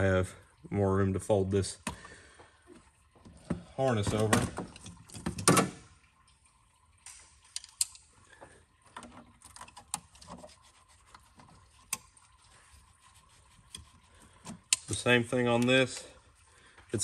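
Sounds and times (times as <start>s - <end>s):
faint rubbing of wires: 10.1s - 14.6s.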